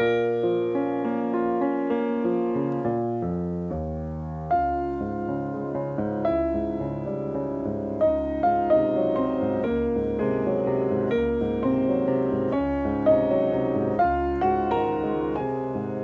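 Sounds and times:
calm piano music: 0.0s - 16.0s.

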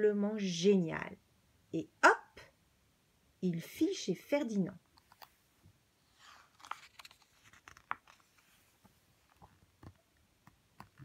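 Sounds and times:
book page turning: 5.0s - 5.4s, 6.1s - 10.0s.

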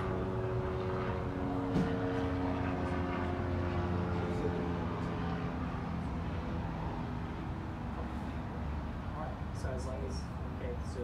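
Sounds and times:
engine drone: 0.0s - 11.0s.

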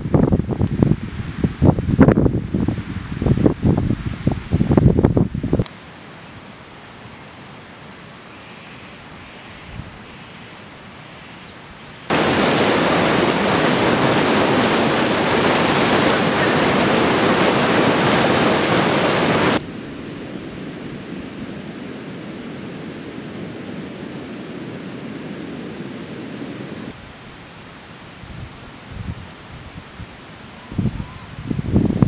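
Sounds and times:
soft low water rush: 5.6s - 31.4s
river rushing over rapids: 12.1s - 28.1s.

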